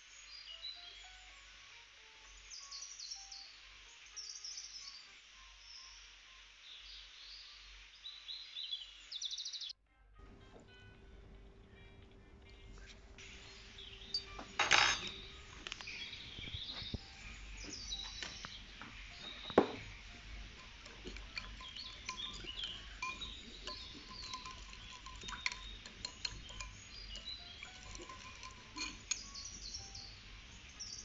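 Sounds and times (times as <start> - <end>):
metal spoon stirring in glass bowl: 12.8 - 15.8, 19.8 - 30.1.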